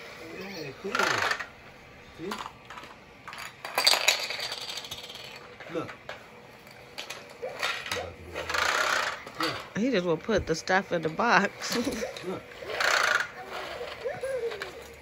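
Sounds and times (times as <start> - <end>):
toy vacuum on wooden floor: 0.3 - 1.5, 7.0 - 9.7, 11.0 - 15.0
plastic balls clicking and rattling: 2.2 - 6.0, 11.6 - 15.0.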